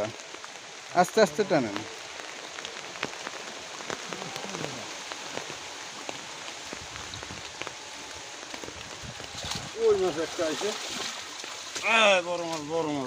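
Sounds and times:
rain falling on a pond: 0:00.0 - 0:13.0.

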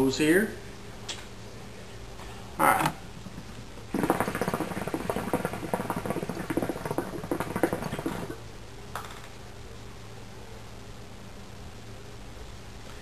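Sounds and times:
hookah water gurgling: 0:03.2 - 0:08.5.

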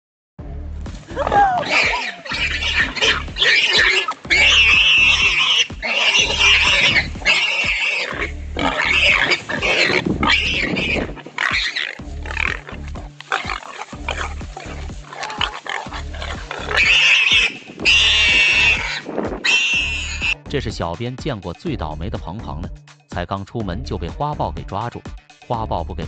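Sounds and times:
background music with bass beat: 0:00.4 - 0:26.0
warthog squealing: 0:01.1 - 0:20.4.

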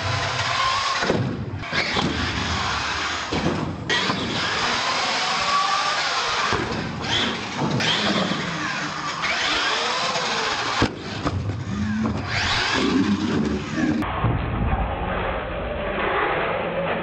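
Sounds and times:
electric motor whining: 0:03.9 - 0:14.0.

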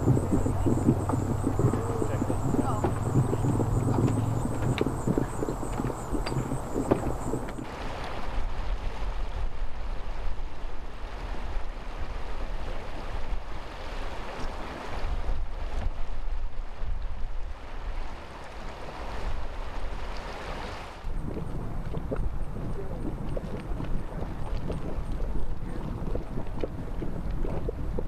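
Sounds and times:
wind buffeting microphone: 0:00.0 - 0:18.2, 0:21.0 - 0:28.0
river rushing over riffles: 0:00.0 - 0:21.8.

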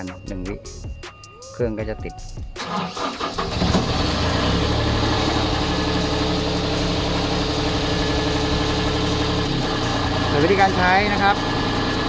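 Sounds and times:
diesel engine idling: 0:02.6 - 0:12.0.

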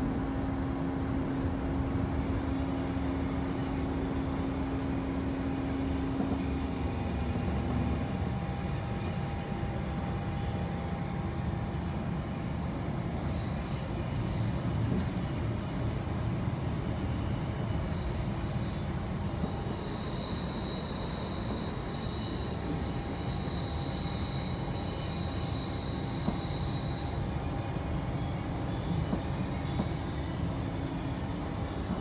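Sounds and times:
train wheels rumbling on track: 0:00.0 - 0:32.0
faint high whine: 0:17.7 - 0:32.0.

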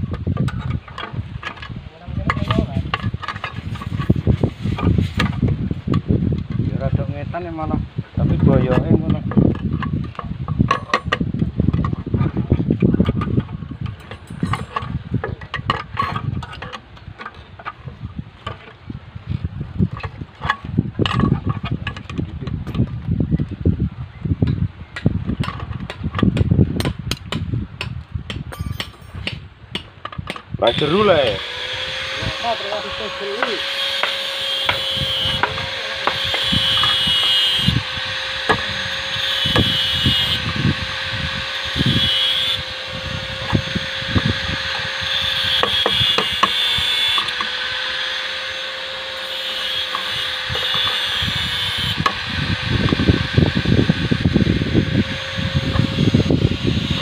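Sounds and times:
metal rods clinking: 0:13.7 - 0:18.8, 0:28.5 - 0:29.3.

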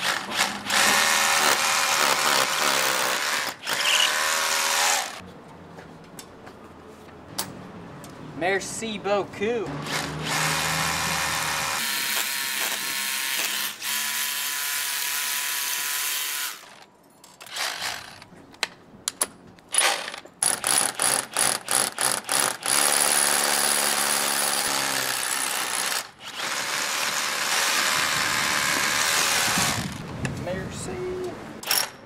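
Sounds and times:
rotary hammer drilling into brick: 0:00.0 - 0:05.2, 0:09.9 - 0:16.8, 0:19.8 - 0:29.9.

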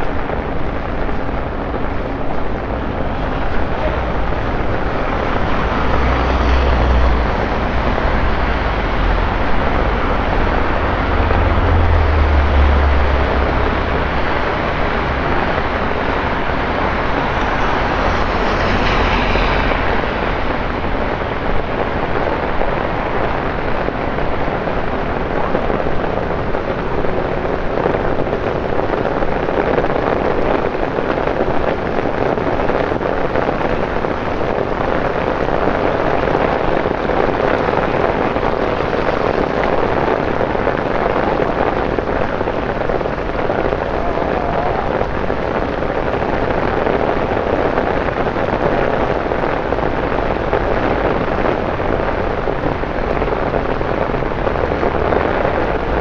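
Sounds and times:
low rumble: 0:00.0 - 0:22.0
heavy rain on pavement: 0:00.0 - 0:56.0.

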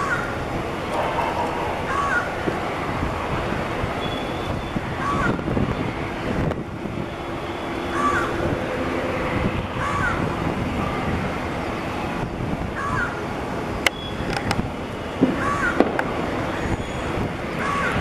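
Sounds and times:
jet engines at takeoff: 0:00.0 - 0:18.0
bird calling: 0:01.0 - 0:02.6.

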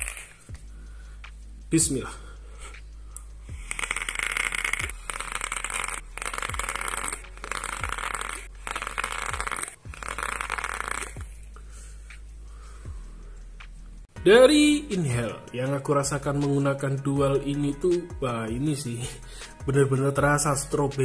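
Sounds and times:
air hissing through vape: 0:00.0 - 0:01.7, 0:02.6 - 0:13.4
vape coils sizzling and crackling: 0:00.0 - 0:01.8, 0:02.9 - 0:12.3.

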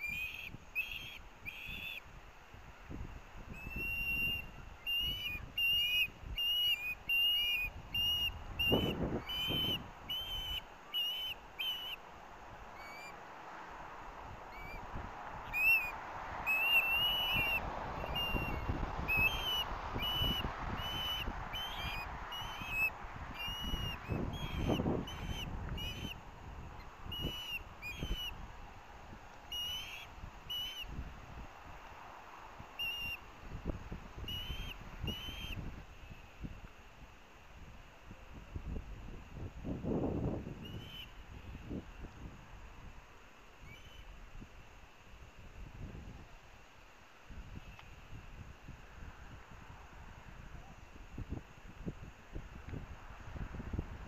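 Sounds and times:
bird chick whistled chirps: 0:00.0 - 0:02.0, 0:03.5 - 0:12.0, 0:12.8 - 0:13.2, 0:14.5 - 0:14.8, 0:15.5 - 0:26.2, 0:26.8 - 0:28.4, 0:29.5 - 0:30.9, 0:32.8 - 0:33.2, 0:34.2 - 0:35.6, 0:40.6 - 0:41.1, 0:43.6 - 0:44.1.

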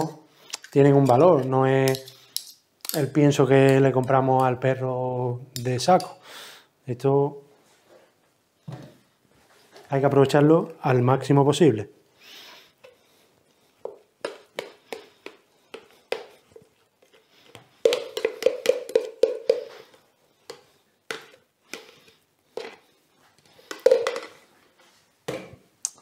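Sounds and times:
spoon tapping plastic jug: 0:13.8 - 0:22.8, 0:23.6 - 0:24.4.

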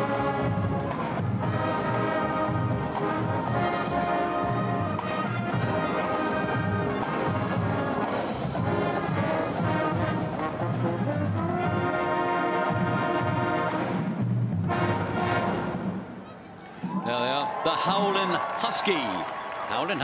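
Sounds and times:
marching drum beat: 0:00.0 - 0:15.2
brass and saxophone chords: 0:00.0 - 0:16.2.

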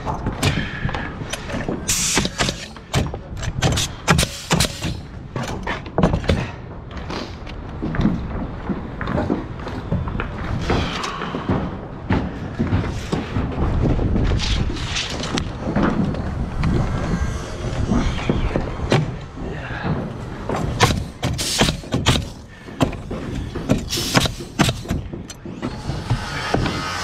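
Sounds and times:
wooden boards knocking and clattering: 0:00.0 - 0:06.9, 0:19.8 - 0:27.0
wind rumbling on microphone: 0:06.7 - 0:21.3.

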